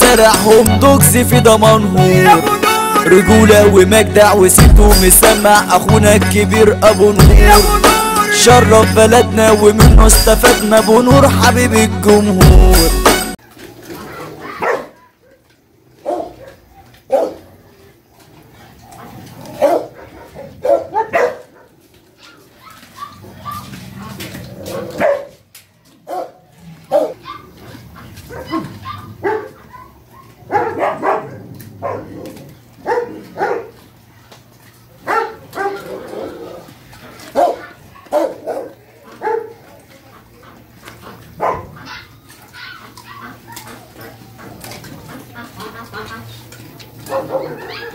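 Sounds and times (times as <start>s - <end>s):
song playing: 0.0s - 13.4s
dog barking: 14.1s - 15.4s, 16.0s - 17.5s, 18.9s - 23.7s, 24.9s - 25.4s, 26.0s - 27.6s, 28.3s - 33.8s, 35.0s - 36.0s, 37.3s - 39.7s, 41.4s - 43.8s, 47.1s - 47.9s.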